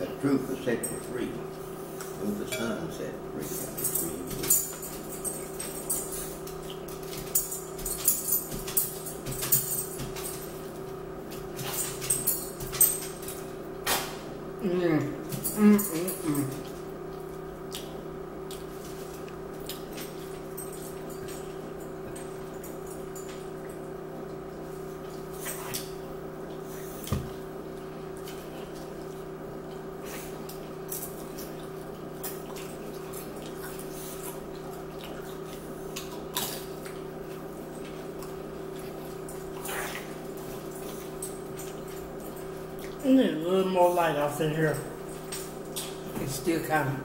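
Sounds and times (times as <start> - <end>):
steady low hum: 0.0 - 47.0
chewing potato chips: 15.4 - 22.8, 27.7 - 43.0.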